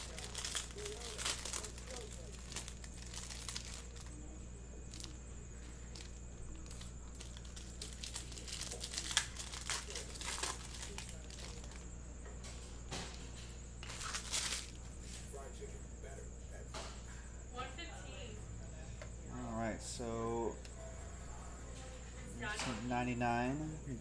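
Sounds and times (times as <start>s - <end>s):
plastic wrappers crinkling: 0.0s - 4.3s, 4.9s - 11.9s, 13.8s - 14.8s
low steady hum: 0.0s - 24.0s.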